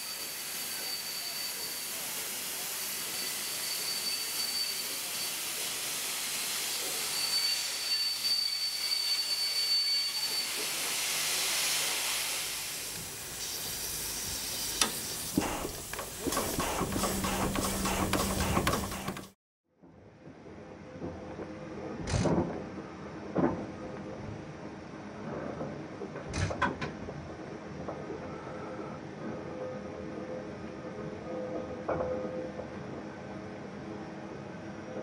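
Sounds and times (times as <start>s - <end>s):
high brake squeal: 0.0s - 10.9s
hiss of escaping steam: 0.0s - 19.4s.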